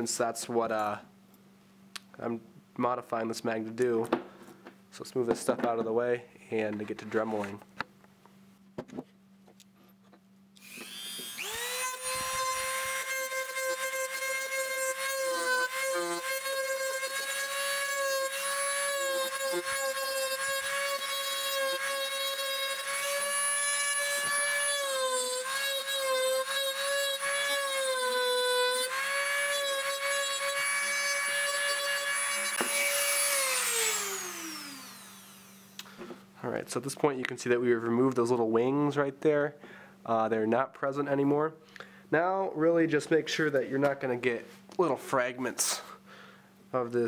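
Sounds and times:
rotary tool motor whine: 10.6 - 35.8.

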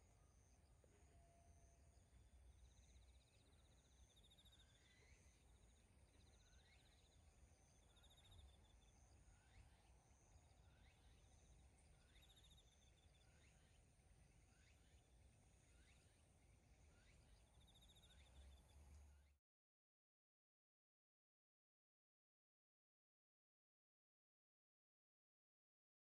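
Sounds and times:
faint insect trills: 0.0 - 19.2
thin steady high insect tone: 0.0 - 19.4.

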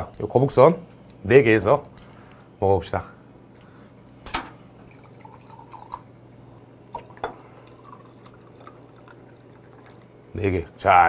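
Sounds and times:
beer pouring into a glass: 4.8 - 10.7
glass clinking: 7.0 - 10.1.

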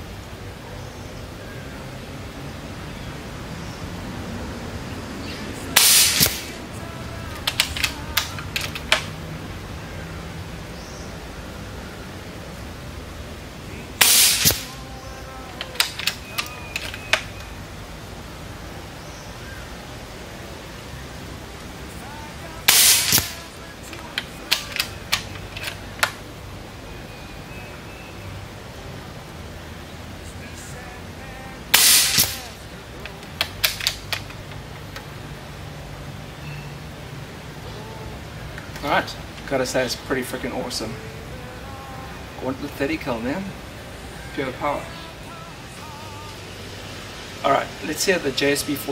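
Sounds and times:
sharp crack: 5.7 - 6.7, 7.3 - 9.1, 14.0 - 14.9, 15.5 - 17.3, 22.6 - 26.2, 31.7 - 34.4
air rifle shot: 5.8 - 6.6, 14.0 - 14.8, 22.7 - 23.5, 31.7 - 32.6
sharp clicks: 5.8 - 6.6, 7.3 - 9.1, 14.0 - 14.8, 15.5 - 17.5, 22.7 - 26.2, 31.8 - 35.1.

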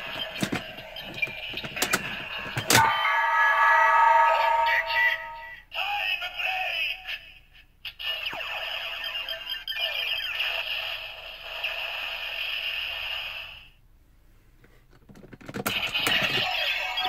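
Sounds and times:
toy electronic sound effects and music: 15.8 - 17.0.

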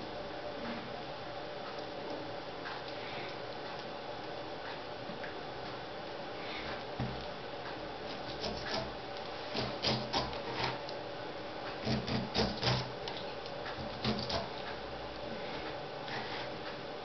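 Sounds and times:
knife scraping pineapple peel: 8.1 - 10.9, 11.8 - 14.6.

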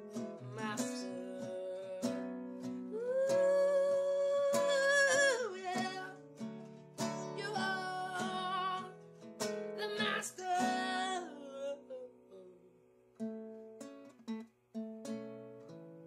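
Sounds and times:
woman singing: 0.0 - 6.4, 7.0 - 9.0, 9.7 - 12.7
strummed acoustic guitar: 0.0 - 12.5, 13.1 - 16.0.

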